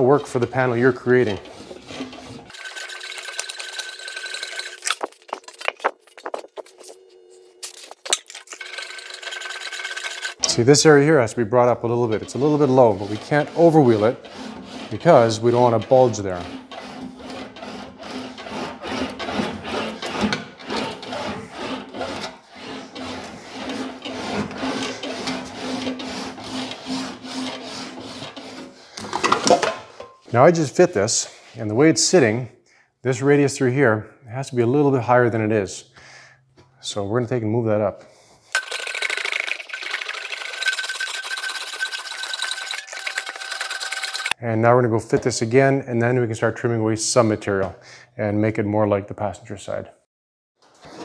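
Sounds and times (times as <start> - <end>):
sheet metal rasping through rollers: 0.0 - 5.4, 8.5 - 30.1.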